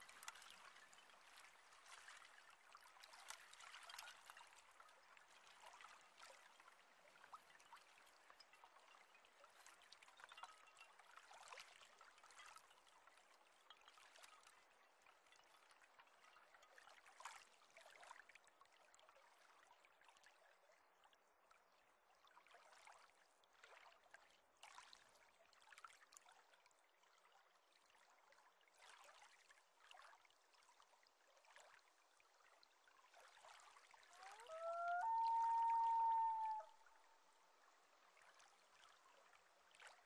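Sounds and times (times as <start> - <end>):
faint trickling water: 0.0 - 40.0
loon calling: 34.2 - 36.7.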